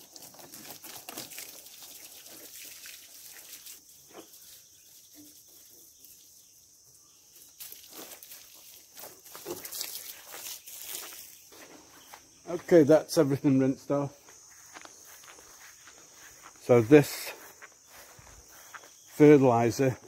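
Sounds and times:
hose water spraying: 0.0 - 12.3.

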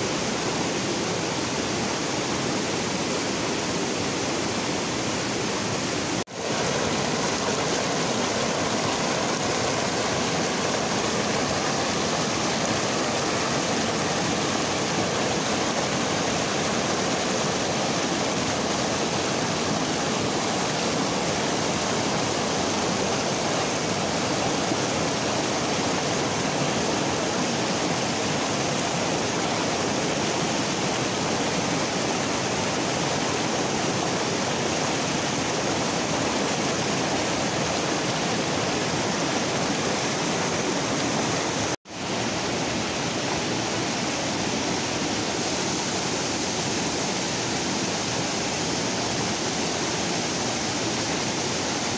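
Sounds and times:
river rapids rushing: 0.0 - 51.9.

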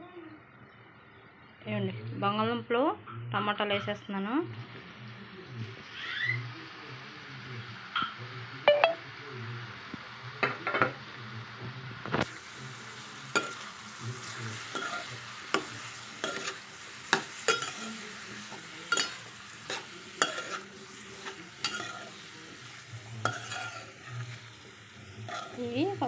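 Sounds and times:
oil sizzling: 4.5 - 26.0
metal spoon scraping metal pan: 18.9 - 22.2, 23.2 - 24.3, 25.2 - 25.6.

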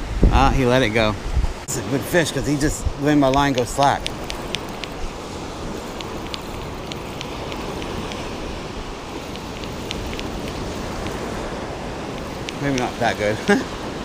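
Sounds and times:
ocean surf: 0.0 - 14.0
wind: 0.0 - 14.0
faint light ticks: 3.2 - 5.0, 5.8 - 8.3, 9.2 - 11.3, 12.1 - 12.9.

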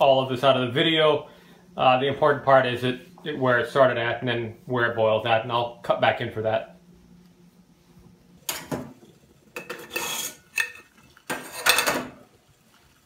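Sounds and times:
metal pot lid clinking and scraping: 9.6 - 12.1.

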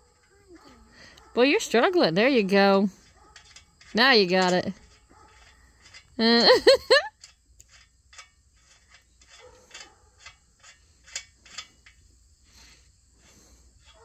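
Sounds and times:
metal clicks and clinking: 1.1 - 12.0.

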